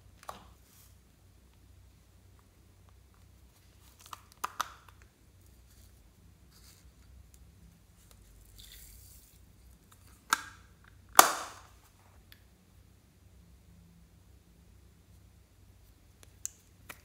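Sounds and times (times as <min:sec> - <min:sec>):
soft rustle: 0:00.5 - 0:01.1, 0:05.4 - 0:10.2.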